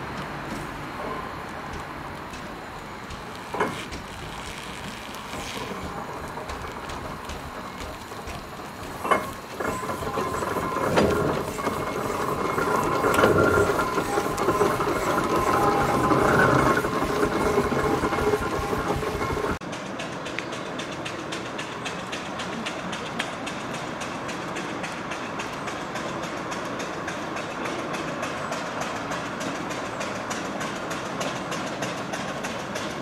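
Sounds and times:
steam hissing: 0.0 - 19.6
steam roller engine clanking: 0.0 - 33.0.

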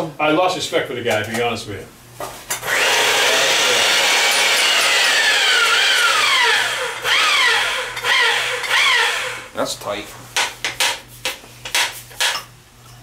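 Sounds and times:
pipe threading machine grinding: 2.6 - 9.5.

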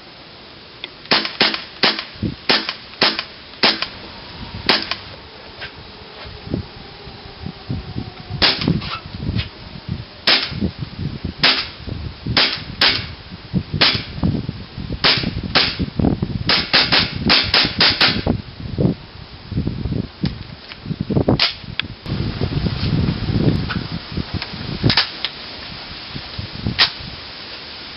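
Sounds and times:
airsoft gun firing: 1.1 - 4.0, 4.7 - 5.0, 8.4 - 8.7, 10.3 - 10.6, 11.4 - 11.8, 12.4 - 13.1, 13.8 - 14.2, 15.0 - 15.9, 16.5 - 18.2.

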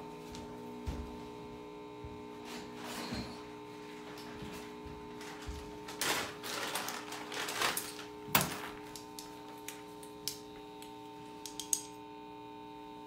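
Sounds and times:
electrical hum: 0.0 - 13.0
packing material rustling: 5.1 - 10.3.

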